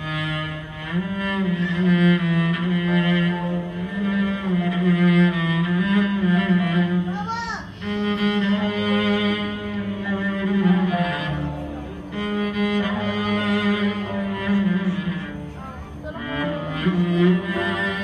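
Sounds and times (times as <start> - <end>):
solo cello melody: 0.0 - 18.0
string orchestra violins: 0.0 - 18.0.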